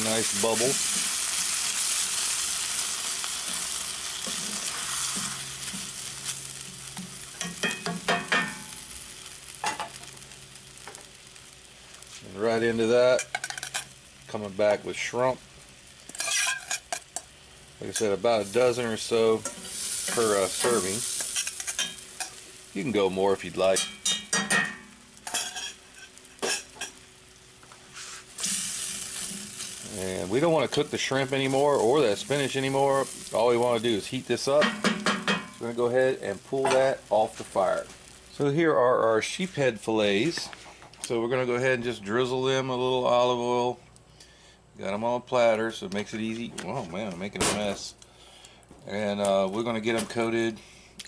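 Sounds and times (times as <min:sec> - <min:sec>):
sauce sizzling and bubbling: 0:00.0 - 0:39.5
wooden spatula knocking on skillet: 0:07.0 - 0:08.6, 0:34.6 - 0:35.6.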